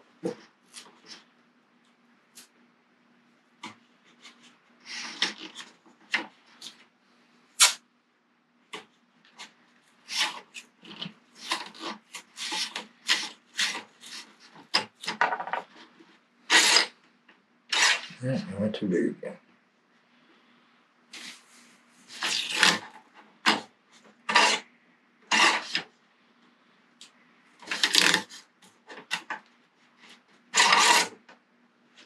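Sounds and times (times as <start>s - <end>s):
masking tape ripping: 7.6s - 7.8s, 10.0s - 15.2s, 16.5s - 17.0s, 17.7s - 18.2s, 22.1s - 22.9s, 25.3s - 25.9s, 27.6s - 28.5s, 30.5s - 31.2s.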